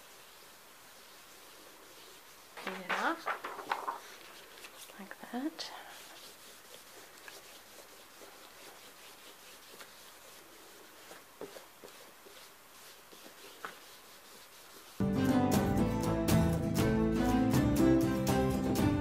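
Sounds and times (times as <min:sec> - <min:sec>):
paper rustling: 0:00.2 - 0:15.0
music: 0:15.0 - 0:19.0.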